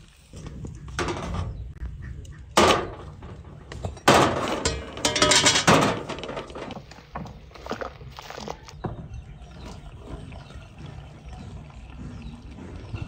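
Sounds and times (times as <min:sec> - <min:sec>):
glass jars clinking on metal tray: 0:03.8 - 0:06.7.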